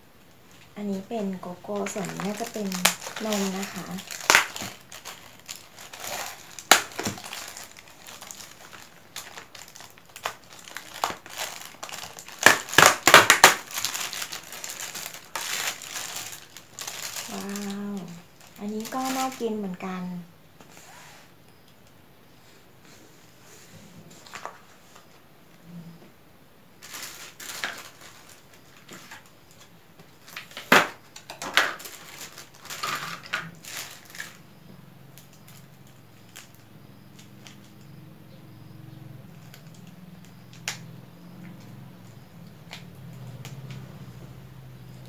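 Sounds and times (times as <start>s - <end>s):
plastic wrapper rustling: 0.5s - 19.8s, 26.8s - 34.5s, 35.2s - 37.8s
plastic packaging crinkling: 0.5s - 20.0s, 26.8s - 34.5s, 35.1s - 37.8s, 39.4s - 40.8s.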